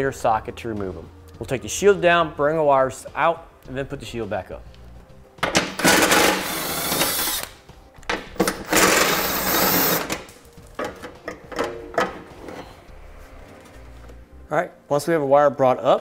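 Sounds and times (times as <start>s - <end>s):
cordless power driver running: 5.8s - 7.5s, 8.6s - 10.1s.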